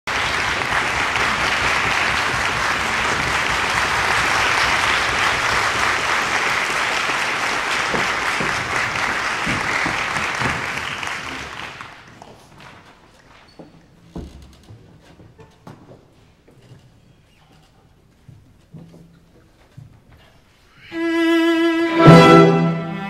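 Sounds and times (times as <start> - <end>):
audience applauding: 0.0 - 12.8.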